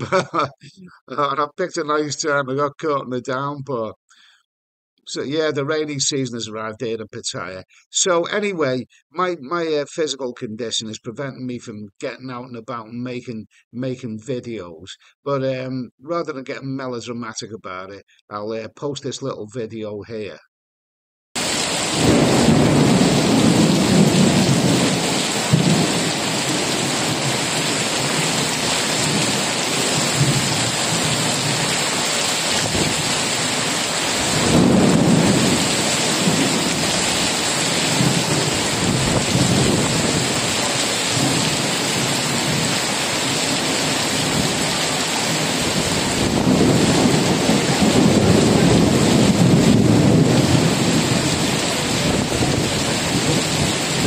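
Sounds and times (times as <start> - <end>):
heavy rain hissing: 21.4 - 54.0
thunder rumbling: 21.4 - 54.0.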